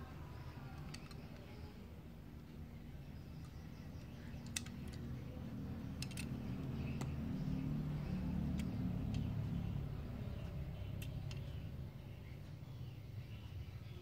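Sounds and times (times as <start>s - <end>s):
toy car clicks and taps: 0.7s - 1.7s, 3.4s - 7.5s, 8.3s - 9.4s, 10.9s - 11.6s.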